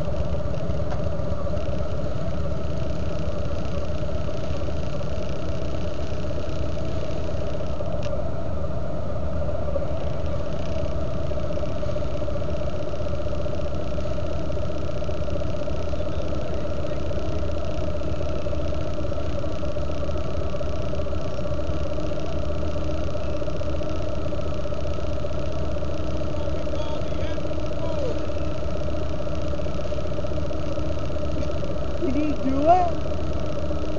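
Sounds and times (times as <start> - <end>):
motorcycle engine idling: 9.3 - 33.9.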